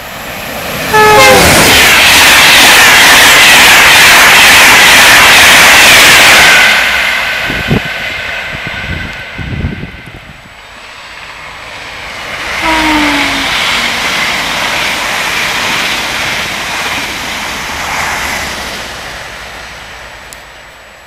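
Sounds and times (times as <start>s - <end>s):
train passing at speed: 0.0s - 21.0s
falling whine: 12.6s - 14.1s.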